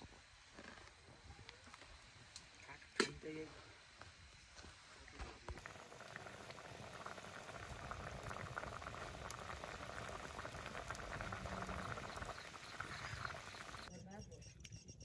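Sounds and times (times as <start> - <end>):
curry bubbling: 5.6 - 13.9.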